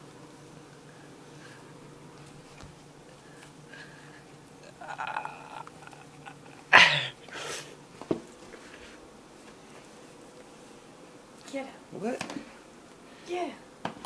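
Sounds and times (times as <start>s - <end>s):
cat hissing: 6.6s - 7.8s.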